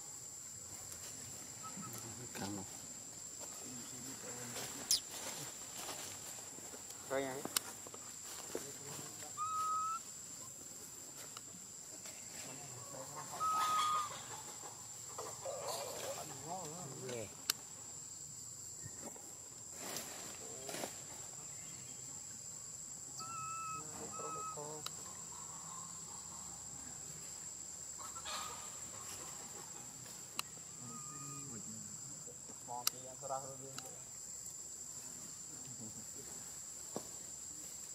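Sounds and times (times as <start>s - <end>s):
insects droning: 0.0s - 37.9s
monkey coo calls: 9.2s - 10.1s, 12.8s - 14.5s, 23.2s - 26.6s, 30.6s - 31.6s.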